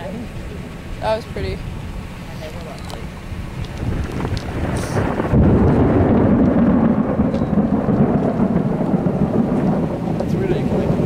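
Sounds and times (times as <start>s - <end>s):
thunderstorm rumble: 3.0s - 11.0s.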